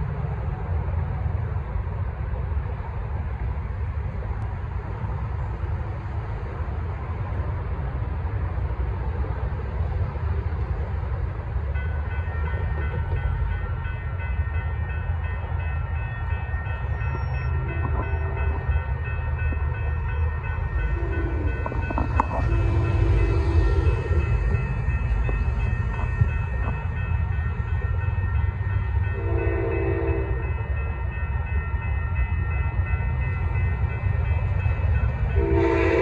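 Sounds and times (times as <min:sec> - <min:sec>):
low rumble of traffic: 0:00.0 - 0:36.0
crossing warning bell ringing: 0:11.5 - 0:36.0.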